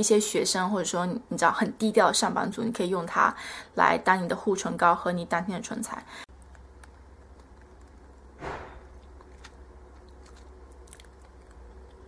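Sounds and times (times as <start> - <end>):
low steady hum: 4.8 - 12.0.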